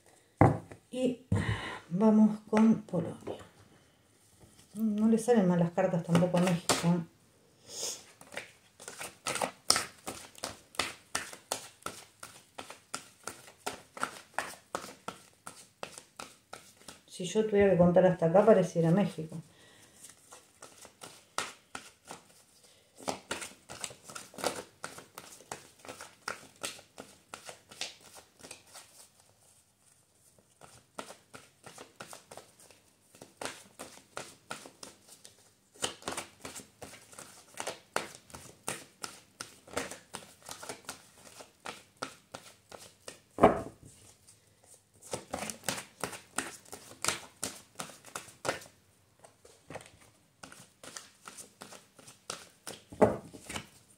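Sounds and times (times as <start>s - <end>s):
cards being shuffled: 6.0s - 7.0s, 8.2s - 17.0s, 20.0s - 43.2s, 45.0s - 53.9s.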